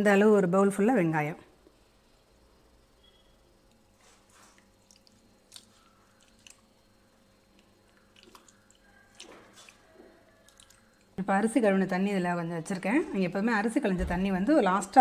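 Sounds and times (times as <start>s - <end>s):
hand squeezing soaked pulp: 3.9s - 11.2s.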